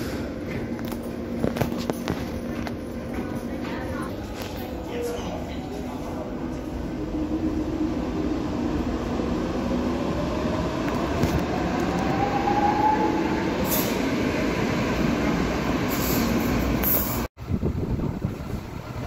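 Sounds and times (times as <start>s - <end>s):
wheels rumbling on rail: 0.0s - 19.0s.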